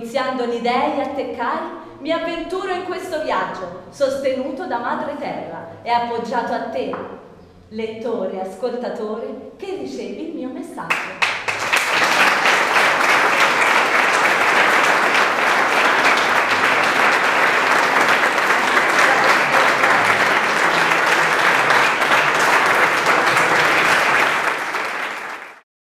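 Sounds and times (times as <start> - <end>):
audience applauding: 10.9 - 25.6.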